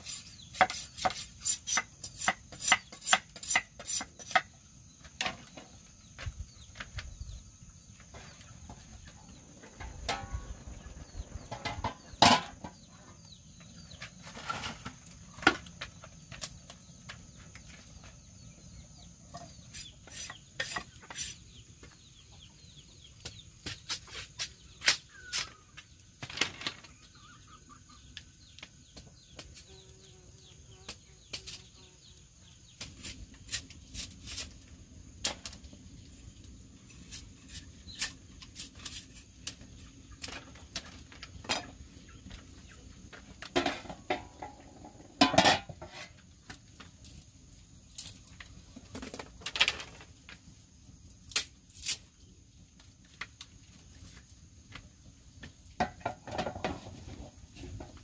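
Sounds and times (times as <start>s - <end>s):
chickens clucking: 26.8s - 29.3s.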